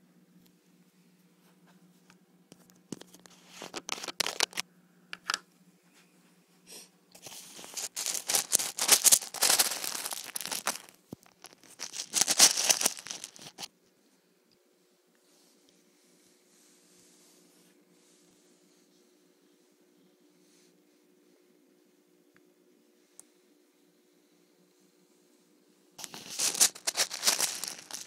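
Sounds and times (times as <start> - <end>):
plastic packet crinkling: 3.0 - 4.6, 7.2 - 13.7, 26.0 - 28.0.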